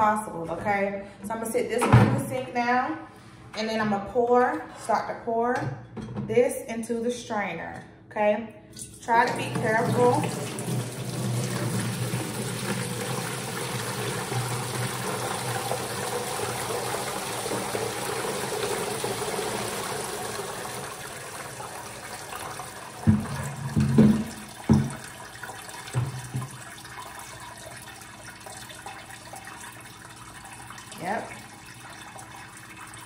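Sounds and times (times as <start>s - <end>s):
juice pouring into bucket: 9.7s - 33.0s
plastic bucket knocks: 23.0s - 25.0s, 25.9s - 26.6s.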